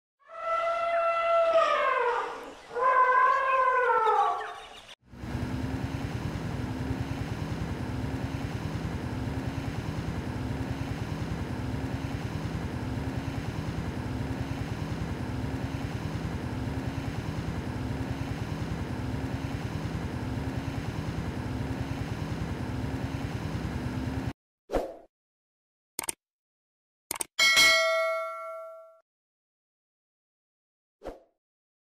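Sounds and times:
engine idling: 0:05.0 - 0:24.3.

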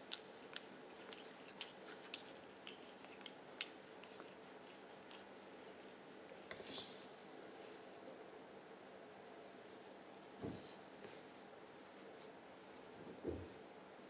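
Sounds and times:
brush crackling through cat fur: 0:00.0 - 0:08.0.

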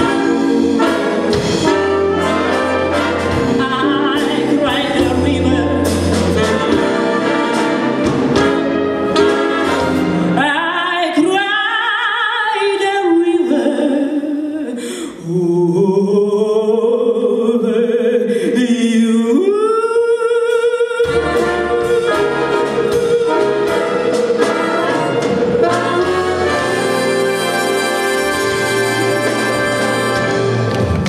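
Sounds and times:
pop and brass band accompaniment: 0:00.0 - 0:10.7, 0:21.0 - 0:31.0
woman singing jazz ballad: 0:01.6 - 0:07.5, 0:10.3 - 0:27.0.

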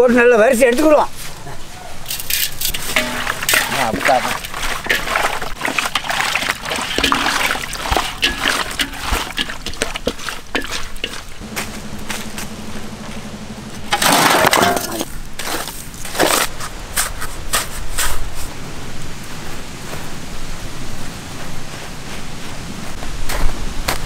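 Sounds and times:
scoop scraping dry earth: 0:02.1 - 0:12.5, 0:13.9 - 0:18.5.

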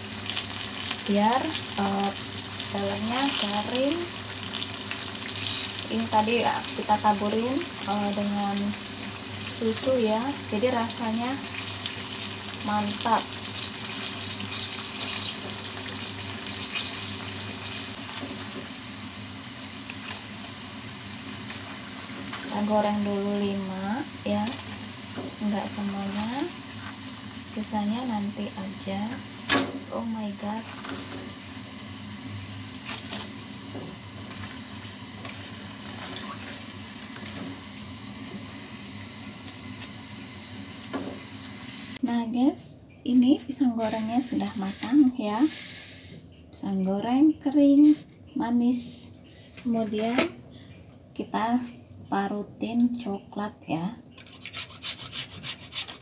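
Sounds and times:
fritters sizzling in hot oil: 0:00.0 - 0:42.0.

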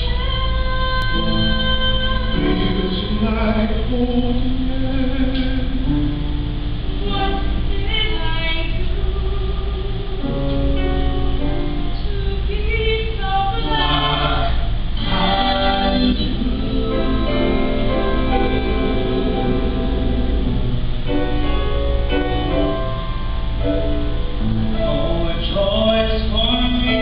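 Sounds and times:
mixed choir singing in harmony: 0:13.6 - 0:21.4.

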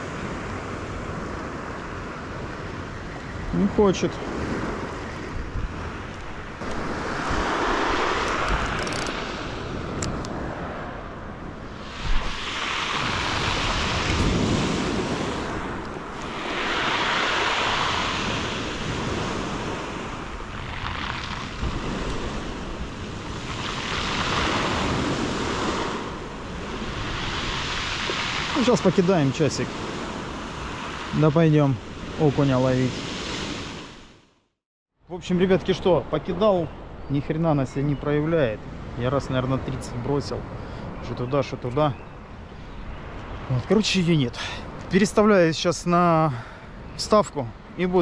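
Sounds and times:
wind buffeting microphone: 0:00.0 - 0:31.2
sea waves breaking on shore: 0:00.0 - 0:34.3.

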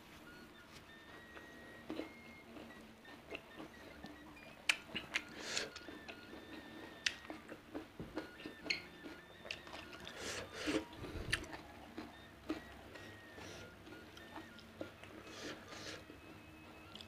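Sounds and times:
wet chewing and mouth smacks: 0:04.6 - 0:06.2, 0:07.0 - 0:10.2, 0:11.2 - 0:12.7.

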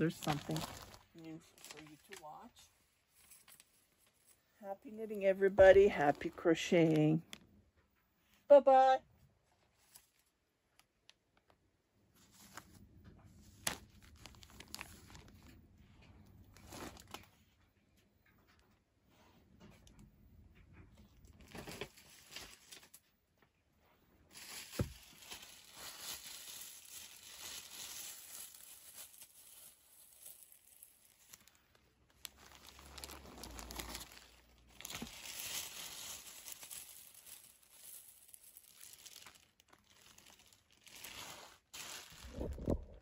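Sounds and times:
plastic bags crinkling: 0:00.0 - 0:07.4, 0:13.4 - 0:15.7, 0:16.4 - 0:17.5, 0:21.2 - 0:23.1, 0:24.3 - 0:43.0.

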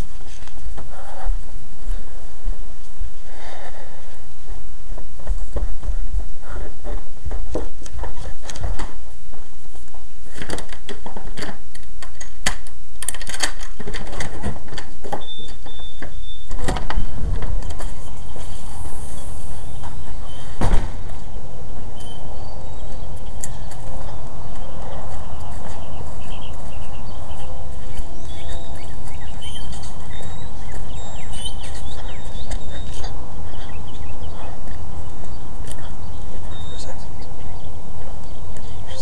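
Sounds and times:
rushing noise: 0:17.0 - 0:29.1.

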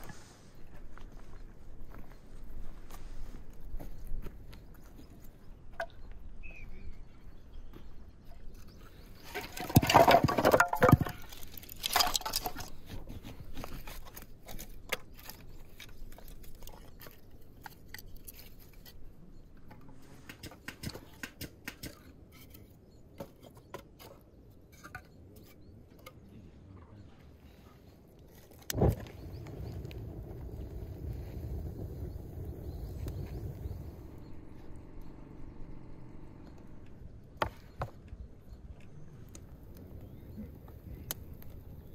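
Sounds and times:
firewood knocking and clattering: 0:09.3 - 0:17.8.

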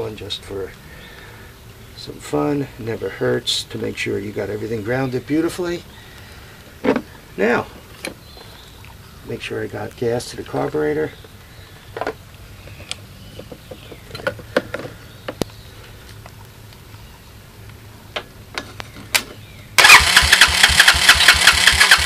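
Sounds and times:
faint clicks and knocks: 0:11.2 - 0:17.0
quad engine running: 0:19.8 - 0:22.0.

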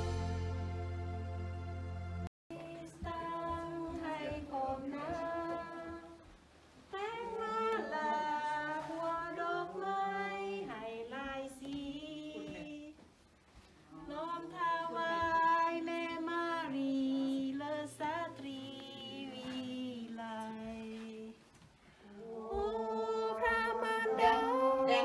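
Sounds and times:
woman singing slow melody: 0:14.0 - 0:21.4, 0:22.0 - 0:25.0.

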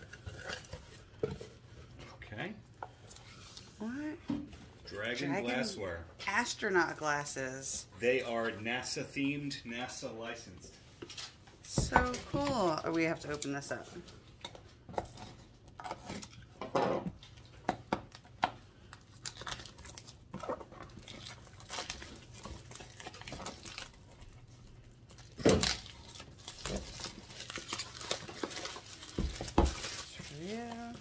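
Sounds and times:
plastic shrink wrap crinkling: 0:18.9 - 0:31.0.

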